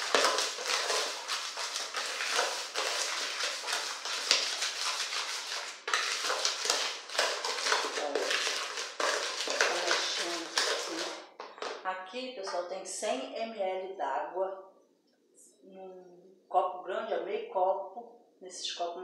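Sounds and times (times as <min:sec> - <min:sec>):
spoon scraping plastic bowl: 0:00.0 - 0:11.8.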